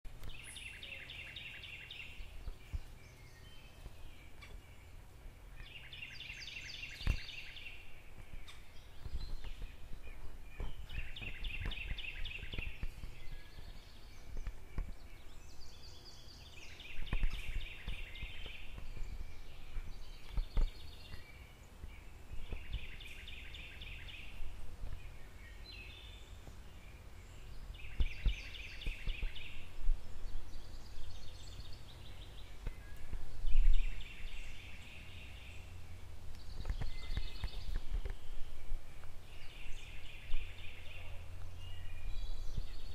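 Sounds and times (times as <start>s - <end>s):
songbird trilling: 0.2s - 21.6s.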